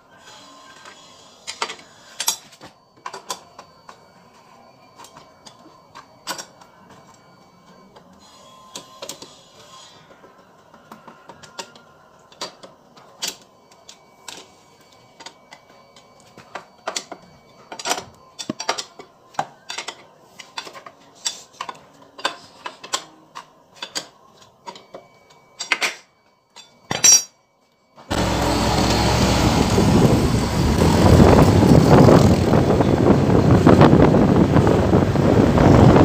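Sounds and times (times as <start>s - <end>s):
hand tool clinking on bolts: 26.6s - 27.4s
scooter riding on road: 28.1s - 36.0s.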